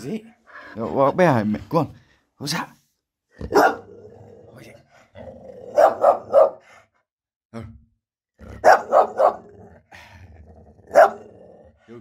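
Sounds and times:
dog barking: 3.4 - 3.9, 5.7 - 6.7, 8.6 - 9.5, 10.9 - 11.3.

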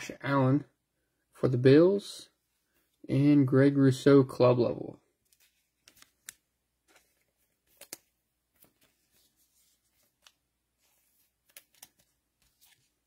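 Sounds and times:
trading cards and foil pack rustling: 5.2 - 13.0.

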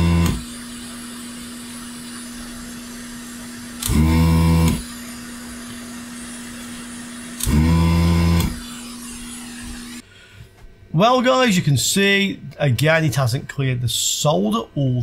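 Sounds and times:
desoldering pump whirring: 0.0 - 10.1
hot-air nozzle blowing: 0.0 - 10.1.

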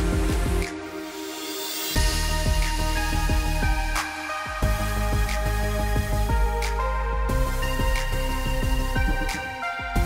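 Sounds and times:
electronic music with synth: 0.0 - 10.0.

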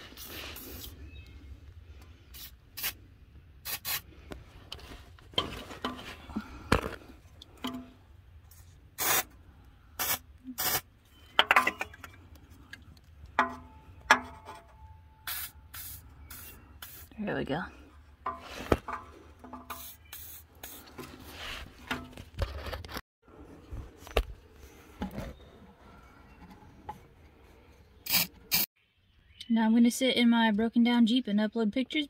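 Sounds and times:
aerosol can spraying: 9.0 - 9.3, 15.3 - 17.1.

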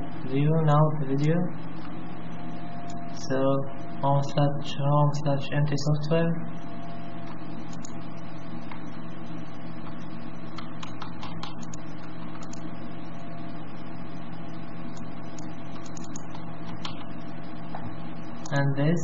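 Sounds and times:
low electrical hum: 0.0 - 19.0
mouse clicks: 9.8 - 12.7.

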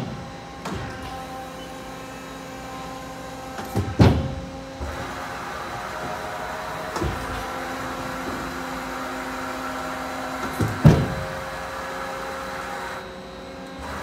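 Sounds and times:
lathe motors humming: 0.0 - 14.0
machine clunks: 5.8 - 9.4, 10.3 - 11.6.

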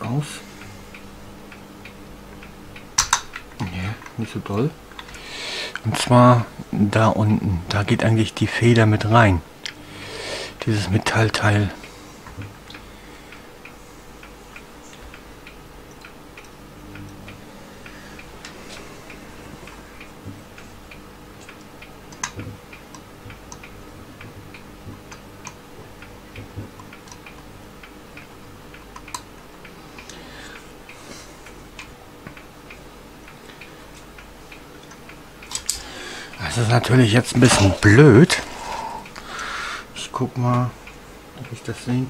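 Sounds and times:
low hum: 9.0 - 40.0
steady ticking: 10.5 - 42.0
small clicks: 28.8 - 29.4.

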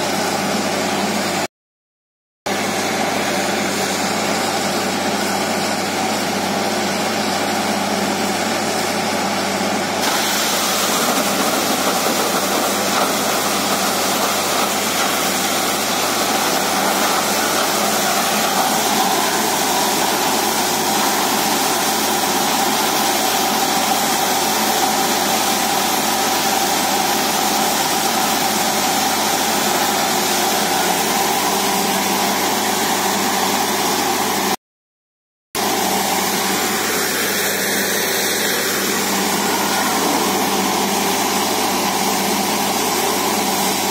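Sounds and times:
drilling rig running: 2.5 - 34.6, 35.6 - 43.9
loud steady hiss of air and water: 10.0 - 33.9, 35.6 - 43.9.

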